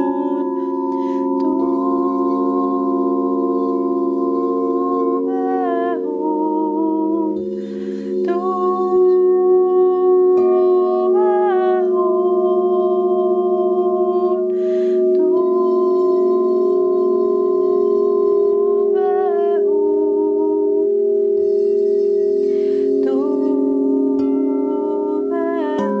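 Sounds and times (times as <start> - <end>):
woman singing wordless melody: 0.0 - 21.5, 22.4 - 26.0
crystal singing bowls ringing: 0.0 - 26.0
woman breathing in: 0.5 - 1.4, 7.4 - 8.2, 14.5 - 15.1, 22.3 - 23.0.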